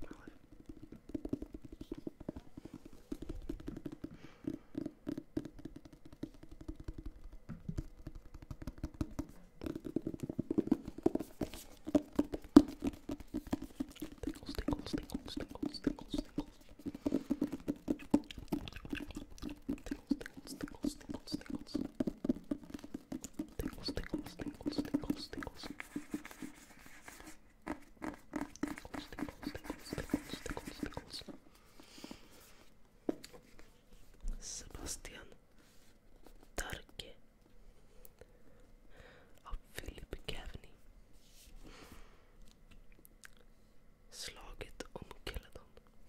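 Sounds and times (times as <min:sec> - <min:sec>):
fingernails tapping on book cover: 0:00.5 - 0:19.1.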